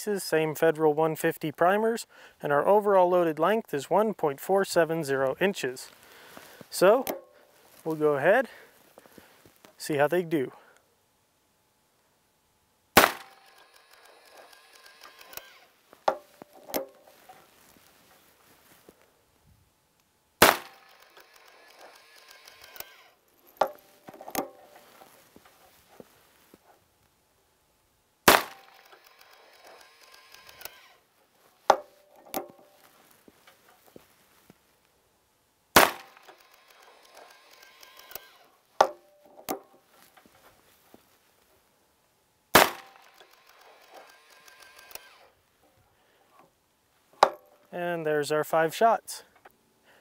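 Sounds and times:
metallic clacks of gun handling: 6.9 - 7.4, 16.0 - 17.5, 20.6 - 26.0, 31.7 - 34.0
revolver gunshot: 13.0 - 13.5, 20.4 - 21.0, 28.3 - 28.8, 35.8 - 36.3, 42.6 - 43.0.

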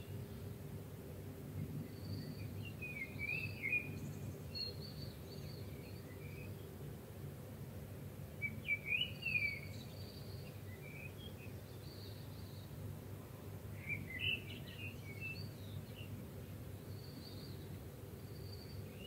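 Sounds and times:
birds chirping and twittering: 1.6 - 6.8, 8.4 - 12.8, 13.6 - 19.0.

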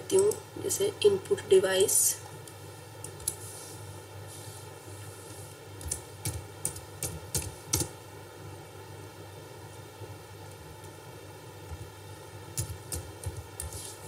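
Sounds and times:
steady low hiss: 0.0 - 14.0
keyboard typing: 3.0 - 3.4, 5.8 - 7.9, 12.5 - 13.9.

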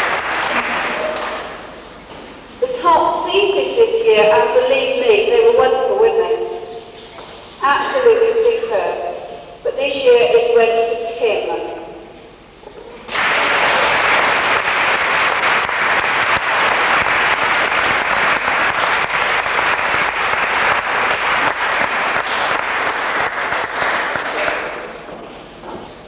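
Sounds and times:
people applauding: 0.0 - 1.7, 13.1 - 25.1.

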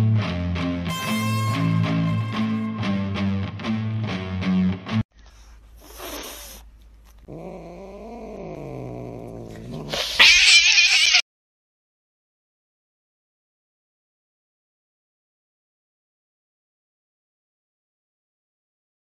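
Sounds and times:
strummed guitar music: 0.0 - 5.0
cat hissing: 5.4 - 6.7, 7.3 - 11.2
cat yowling: 7.3 - 11.2.

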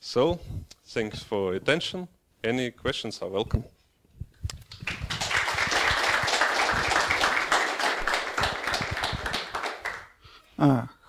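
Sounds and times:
audience applauding: 4.7 - 10.2.

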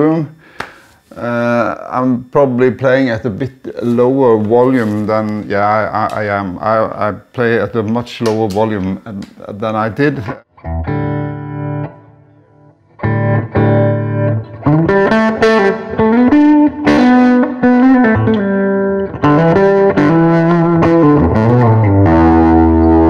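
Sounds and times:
overdriven electric guitar: 10.2 - 23.0.

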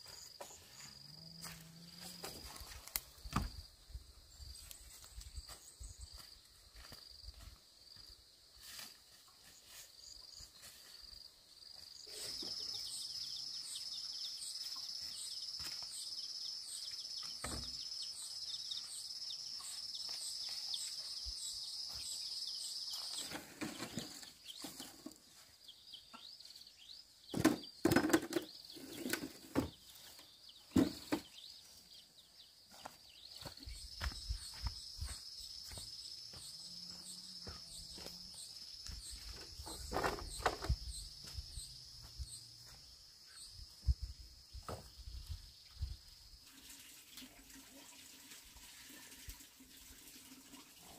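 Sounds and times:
rustling footsteps: 0.0 - 3.6, 28.8 - 43.0.

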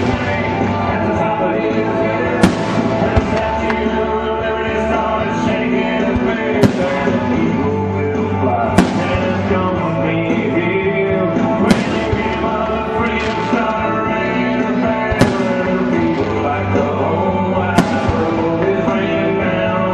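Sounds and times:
loud music with singing: 0.0 - 19.9
firework shells bursting: 2.4 - 3.9, 6.6 - 7.6, 8.7 - 9.7, 11.6 - 16.5, 17.7 - 18.7.

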